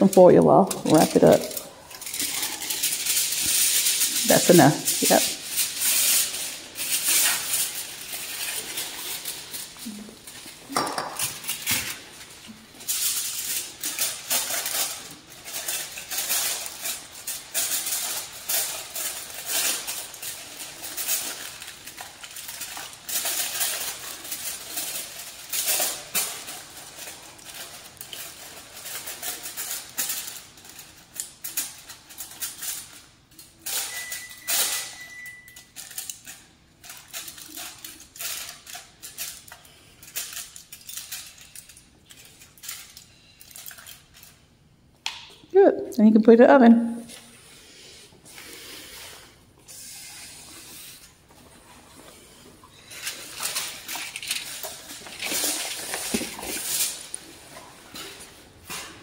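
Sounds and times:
aluminium foil crinkling: 0:00.0 - 0:45.2, 0:47.0 - 0:59.0
thin steady beep: 0:33.9 - 0:35.6.

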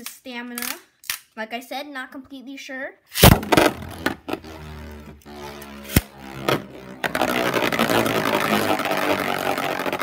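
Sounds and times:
spinning top whirring: 0:03.3 - 0:10.0
spinning top clattering in stadium: 0:05.9 - 0:10.0.

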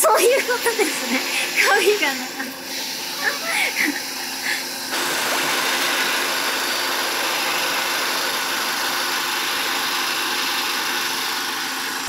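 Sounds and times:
air conditioning hiss: 0:00.0 - 0:08.4
car engine idling: 0:04.9 - 0:12.0.

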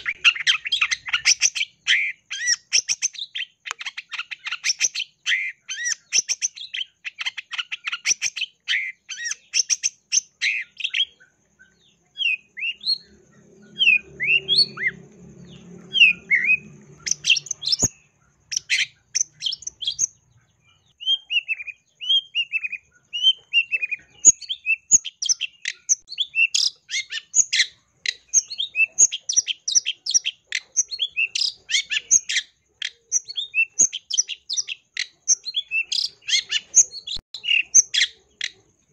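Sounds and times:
bird slurred whistles: 0:00.0 - 0:11.3, 0:12.2 - 0:15.0, 0:15.9 - 0:20.1
bird chattering song: 0:00.0 - 0:38.9.

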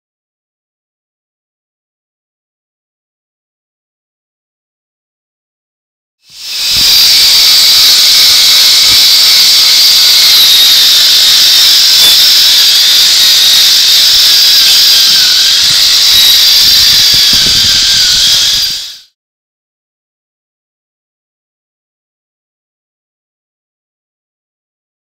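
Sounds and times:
angle grinder grinding metal: 0:06.3 - 0:19.1.

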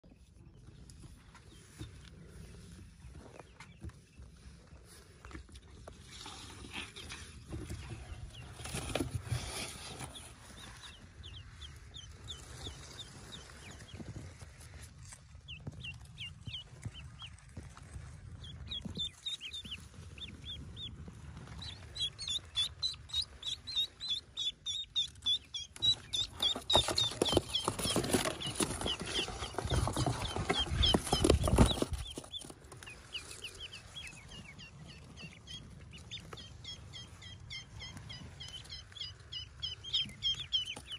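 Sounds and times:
ducklings peeping: 0:00.0 - 0:40.9
loud rustling: 0:26.0 - 0:33.4.

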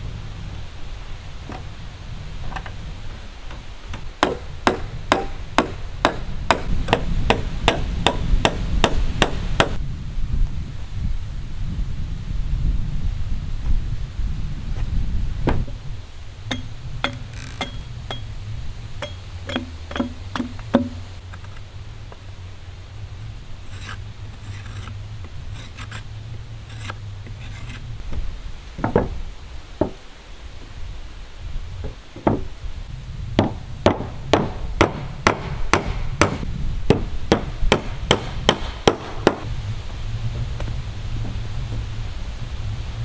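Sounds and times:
hammer striking wood: 0:04.0 - 0:09.8, 0:16.5 - 0:18.2, 0:19.0 - 0:21.0, 0:32.2 - 0:32.5, 0:33.4 - 0:39.4
low rumble: 0:35.6 - 0:43.0.

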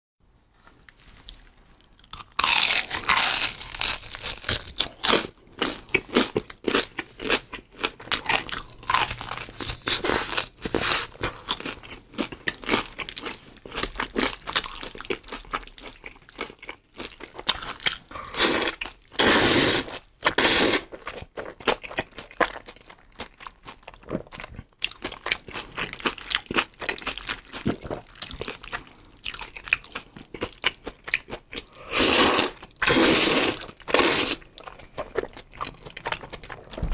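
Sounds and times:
crunching bites: 0:00.9 - 0:12.8
slurping noodles: 0:18.1 - 0:20.9, 0:31.6 - 0:34.6
wet chewing: 0:20.2 - 0:36.9.

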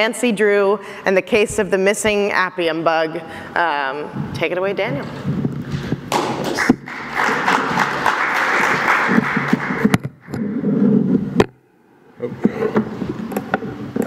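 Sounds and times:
audience applauding: 0:06.4 - 0:10.0.

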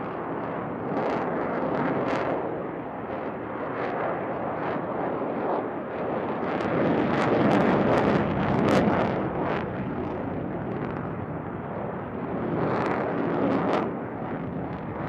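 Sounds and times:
loud rushing jet noise with crackle: 0:00.0 - 0:15.0.

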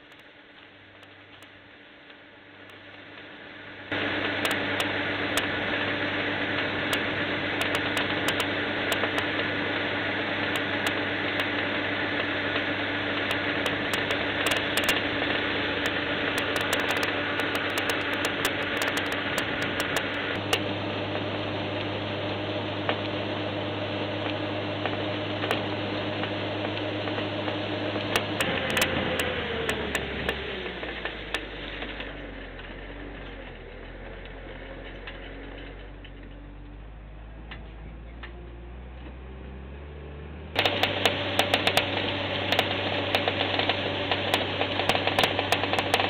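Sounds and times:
farm machine engine humming: 0:00.0 - 0:46.0
machine parts clicking and rattling: 0:13.3 - 0:15.0, 0:15.8 - 0:20.3.

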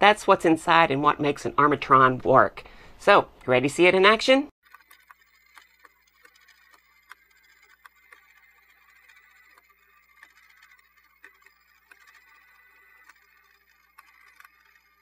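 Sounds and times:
toy robot arm gears whirring: 0:04.6 - 0:15.0
faint clicking: 0:04.7 - 0:15.0.

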